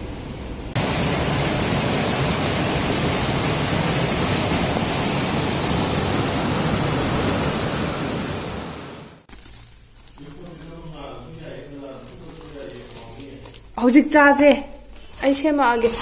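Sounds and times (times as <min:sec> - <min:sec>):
rainstorm with wind: 0:00.0 - 0:09.3.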